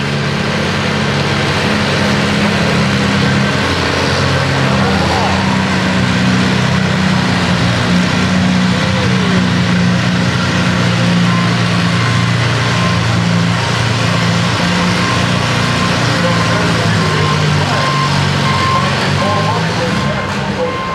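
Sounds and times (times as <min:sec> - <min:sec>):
tractor engine running: 0:00.0 - 0:20.9
faint beep: 0:14.8 - 0:20.9.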